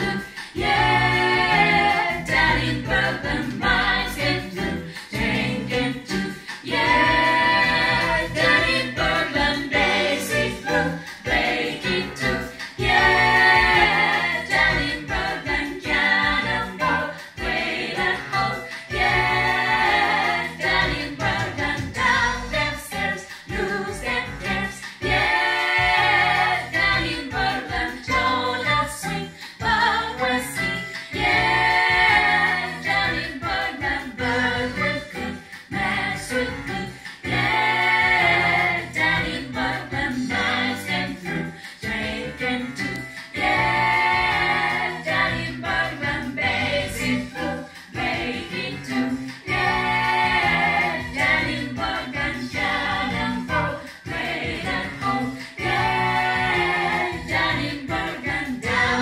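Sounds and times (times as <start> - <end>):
vocal group singing in harmony: 0.0 - 59.0
singers breathing: 0.2 - 0.6, 41.5 - 41.8.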